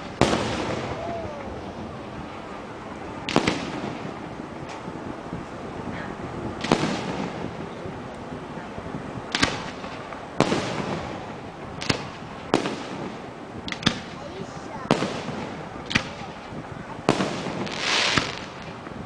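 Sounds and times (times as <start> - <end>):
faint firework pops: 3.2 - 4.9, 9.3 - 11.2, 11.8 - 14.2, 14.9 - 19.0
firework shells bursting: 14.9 - 19.0.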